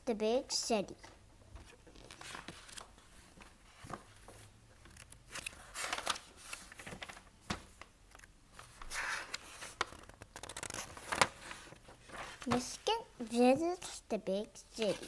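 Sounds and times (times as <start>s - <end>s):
book pages turning: 1.6s - 12.9s, 14.7s - 15.0s.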